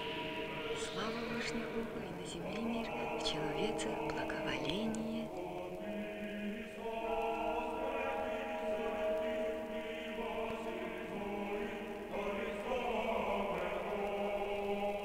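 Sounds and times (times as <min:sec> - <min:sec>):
choir chanting held chords: 0:00.0 - 0:15.0.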